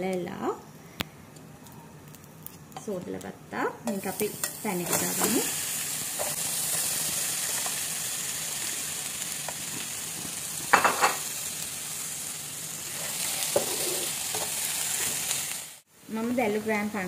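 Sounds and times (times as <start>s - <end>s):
shrimp sizzling in frying pan: 3.9s - 17.0s.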